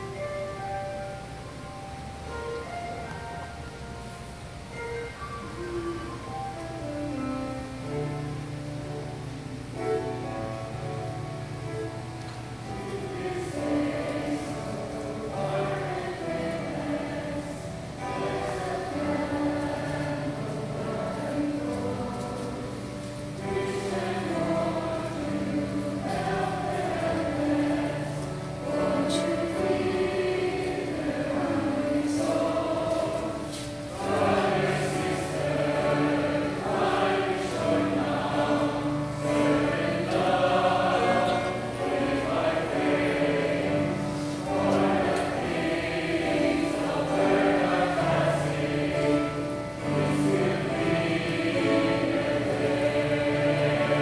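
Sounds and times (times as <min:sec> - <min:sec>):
choir singing a gospel song: 0:00.0 - 0:00.2, 0:11.8 - 0:54.0.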